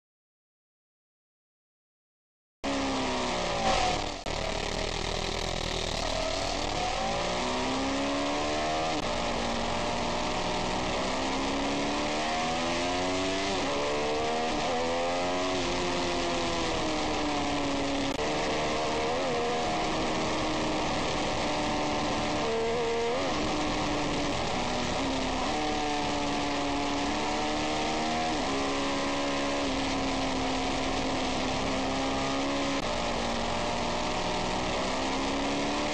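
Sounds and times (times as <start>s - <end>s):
motorcycle engine accelerating: 2.6s - 35.9s.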